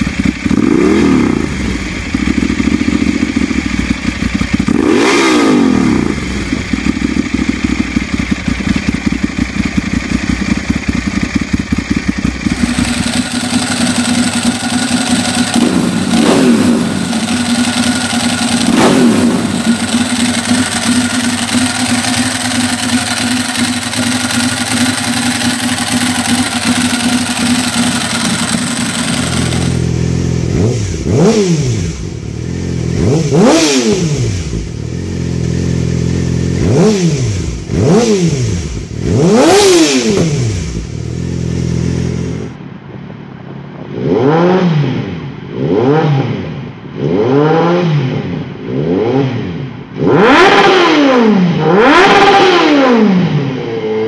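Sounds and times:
motorcycle engine idling: 0.0 - 42.6
motorcycle engine revving: 0.0 - 42.6, 43.9 - 54.0
motorcycle throttle blips: 0.0 - 42.6.

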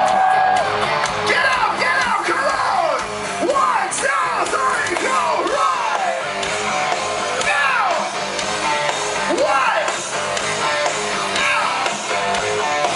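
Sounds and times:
crowd yelling: 0.0 - 10.3
live rock band: 0.0 - 12.9.

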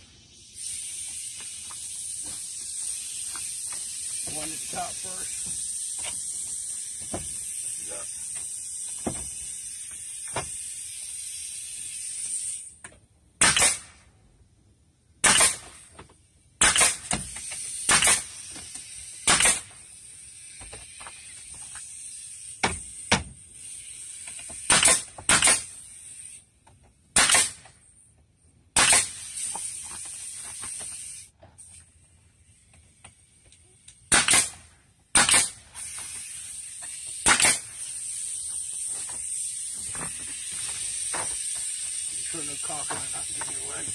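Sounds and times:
air hissing: 0.0 - 13.9, 16.6 - 26.6, 28.8 - 43.9
nail gun firing: 13.4 - 14.0, 15.2 - 15.8, 16.6 - 19.8, 24.4 - 25.8, 27.1 - 27.7, 28.8 - 29.6, 34.0 - 36.3, 36.9 - 38.0.

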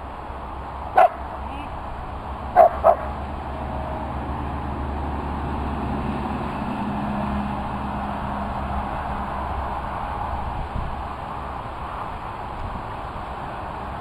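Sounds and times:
low outdoor rumbling noise: 0.0 - 14.0
dog barking: 1.0 - 1.2, 2.6 - 3.1.

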